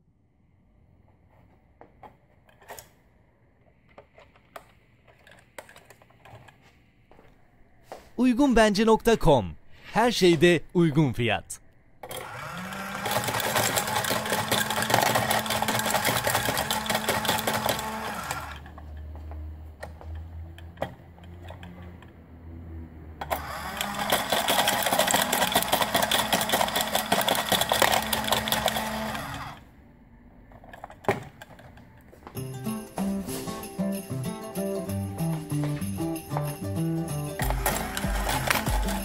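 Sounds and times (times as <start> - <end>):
toy motor and gears rattling: 12.0 - 19.0, 23.2 - 29.6, 35.9 - 39.0.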